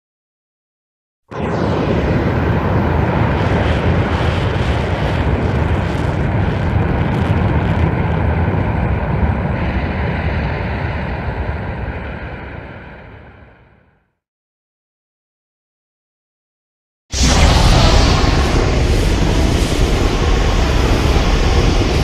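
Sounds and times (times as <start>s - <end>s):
loud noisy rushing blast: 1.3s - 13.4s, 17.1s - 22.0s.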